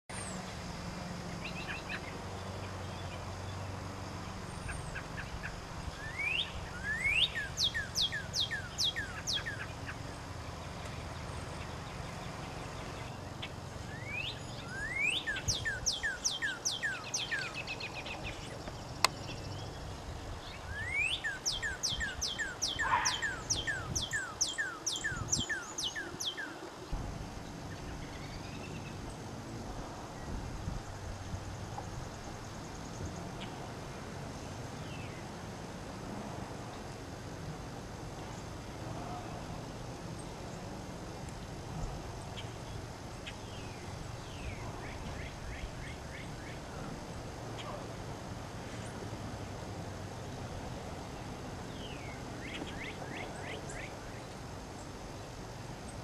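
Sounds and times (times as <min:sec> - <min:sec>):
bird singing slurred whistles: 0:06.0 - 0:09.6, 0:13.9 - 0:18.4, 0:20.6 - 0:26.6.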